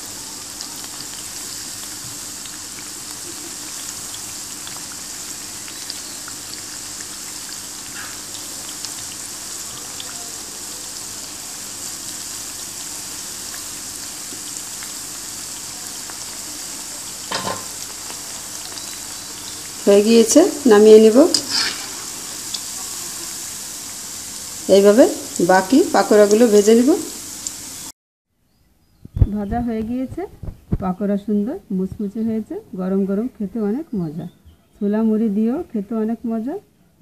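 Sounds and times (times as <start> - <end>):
deep-frying sizzle in hot oil: 0.0 - 27.9.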